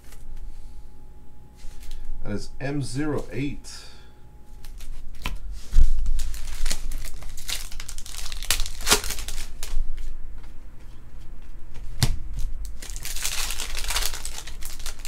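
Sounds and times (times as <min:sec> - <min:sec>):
wrapper crinkling and tearing: 0:04.6 - 0:09.8, 0:12.7 - 0:15.0.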